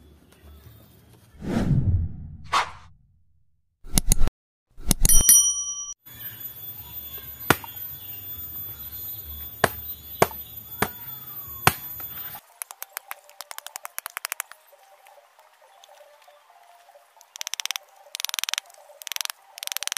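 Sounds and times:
click: 3.9s - 5.1s
bell chime: 5.1s - 12.4s
stone knocking on coconut: 7.5s - 7.8s, 9.6s - 11.0s, 11.7s - 14.3s.

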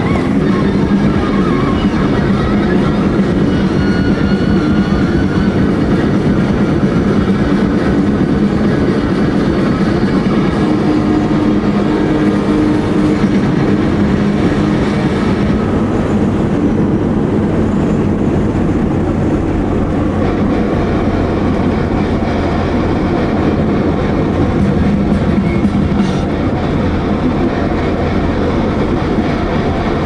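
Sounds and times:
car road and engine noise: 0.0s - 30.0s.

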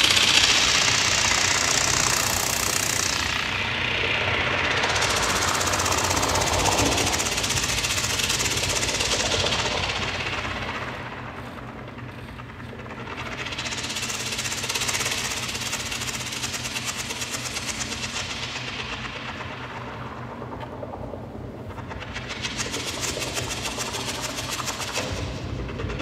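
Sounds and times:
fast-pulsing synthesizer noise: 0.0s - 26.0s
low synthesizer drone: 0.0s - 26.0s.

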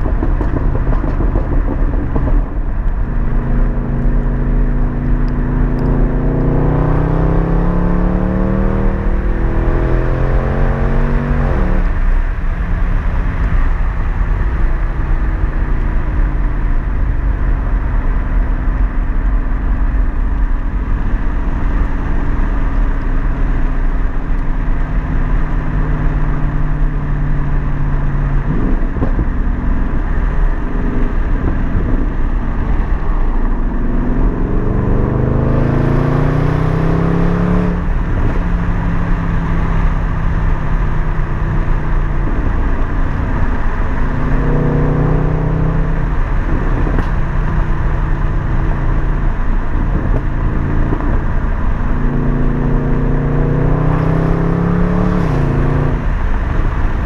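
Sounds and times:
car engine through loud exhaust: 0.0s - 57.0s
low road rumble: 0.0s - 57.0s.

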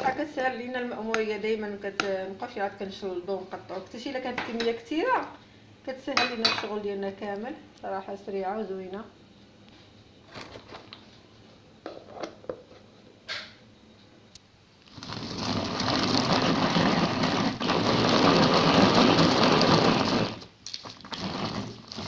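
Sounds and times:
electric food chopper running: 15.1s - 20.4s.

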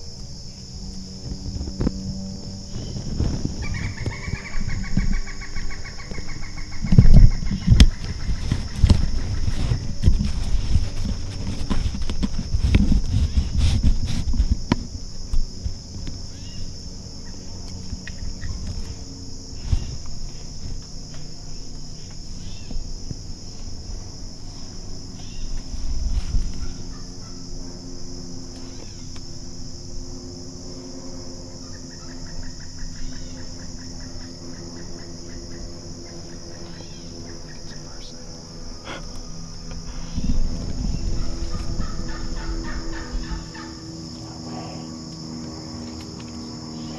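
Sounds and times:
insects buzzing: 0.0s - 46.9s
handling rustles and knocks: 6.8s - 16.2s.

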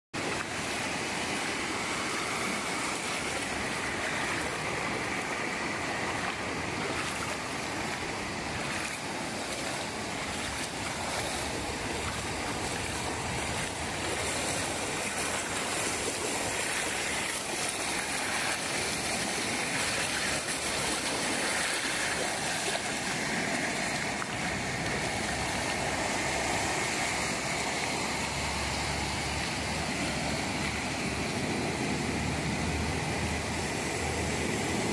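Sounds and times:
waves breaking on beach: 0.2s - 34.9s.

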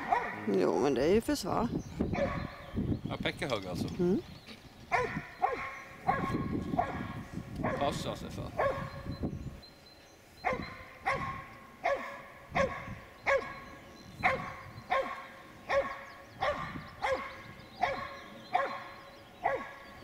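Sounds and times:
dog barking loudly: 0.0s - 0.6s, 2.2s - 2.6s, 4.9s - 7.9s, 8.6s - 8.9s, 10.4s - 13.6s, 14.2s - 19.8s.

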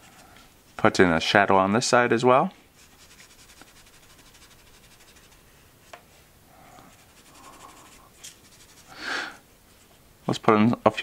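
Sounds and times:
pencil scratching on paper: 2.8s - 5.4s, 6.9s - 8.9s.

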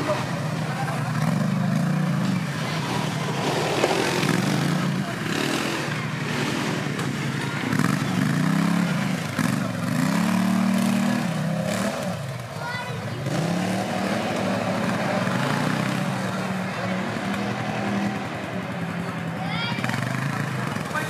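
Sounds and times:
quad bike engine revving: 0.0s - 21.0s.

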